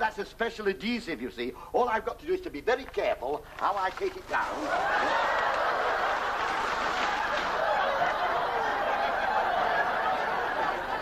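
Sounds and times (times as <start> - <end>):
studio audience laughing: 4.5 - 11.0.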